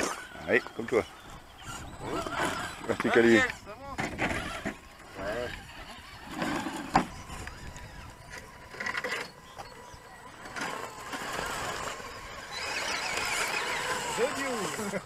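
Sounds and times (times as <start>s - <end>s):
small electric motors whining: 0.0s - 15.0s.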